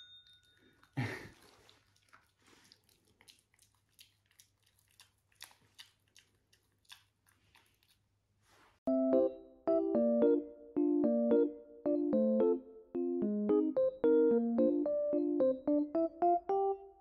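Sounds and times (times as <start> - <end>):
puppy crunching and chewing food: 0.2 - 8.4.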